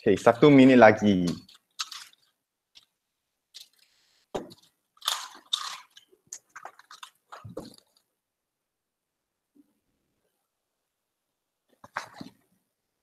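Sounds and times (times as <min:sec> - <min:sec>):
close-up rustling and crackling: 0:01.3 - 0:08.1.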